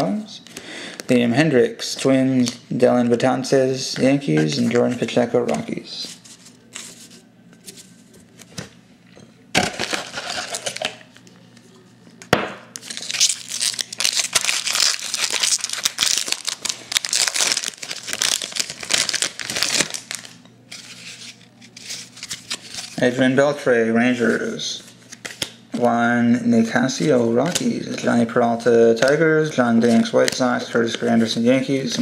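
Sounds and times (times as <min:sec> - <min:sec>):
foil wrapper crinkling and tearing: 0:09.7 - 0:11.0, 0:12.8 - 0:23.0.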